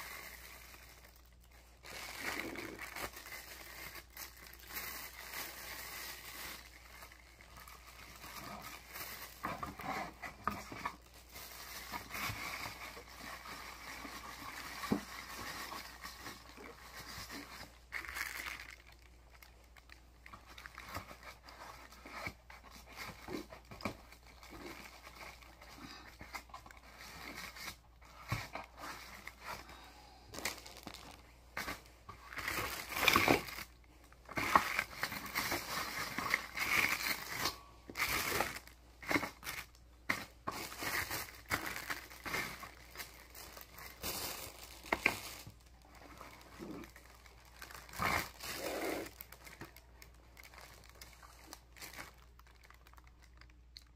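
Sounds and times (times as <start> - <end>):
plastic bags crinkling: 0.0 - 53.9.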